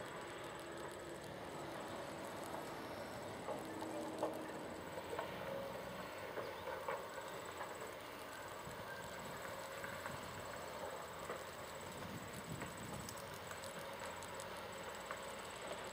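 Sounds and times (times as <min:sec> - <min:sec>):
distant earthmoving machinery: 0:00.0 - 0:15.9.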